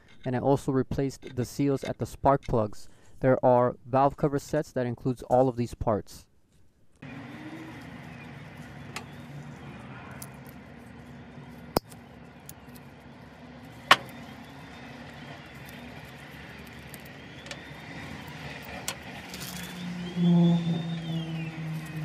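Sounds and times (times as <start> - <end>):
low background hum: 6.4 - 22.0.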